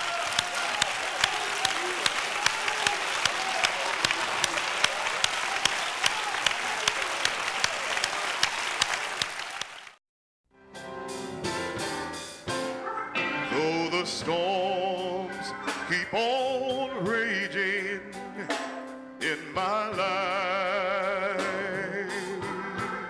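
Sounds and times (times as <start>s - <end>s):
congregation applauding: 0.0s - 10.0s.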